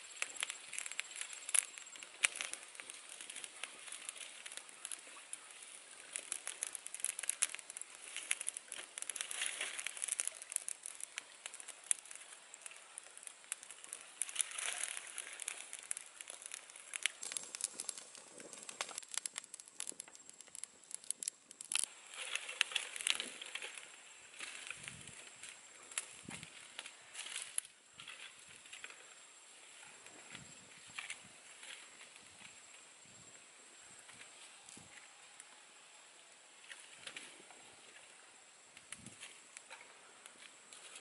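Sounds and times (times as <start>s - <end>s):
dry sticks rustling and scraping: 0.0s - 32.8s
campfire crackling and popping: 0.0s - 41.0s.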